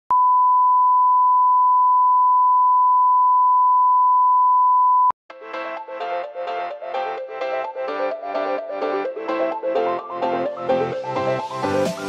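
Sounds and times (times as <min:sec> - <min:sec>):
pure test tone beep: 0:00.1 - 0:05.1
keyboard music: 0:05.3 - 0:12.0.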